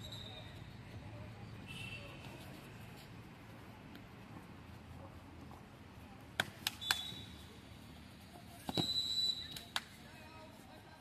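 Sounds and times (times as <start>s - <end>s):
referee's whistle blasts: 8.7s - 9.6s.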